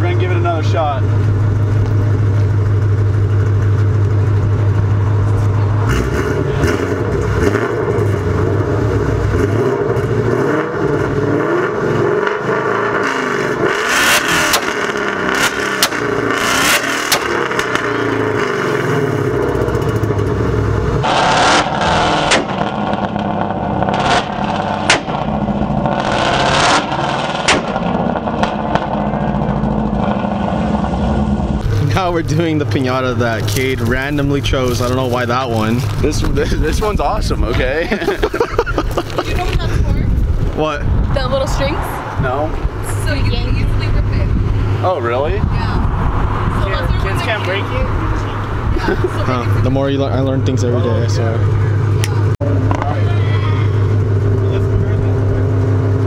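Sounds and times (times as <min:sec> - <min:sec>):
car engine idling: 0:00.0 - 0:56.0
exhaust pops and bangs: 0:14.1 - 0:18.0, 0:21.0 - 0:41.5.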